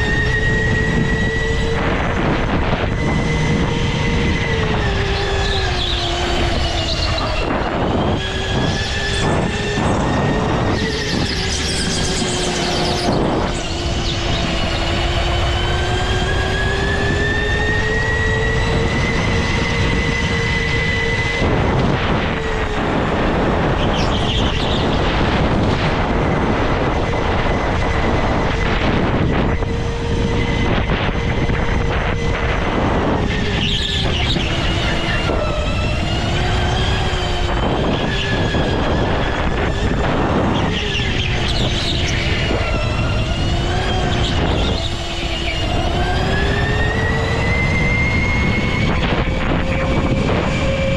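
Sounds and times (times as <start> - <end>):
go-kart engine: 0.0 - 50.9
wind and vibration rumble: 0.0 - 50.9.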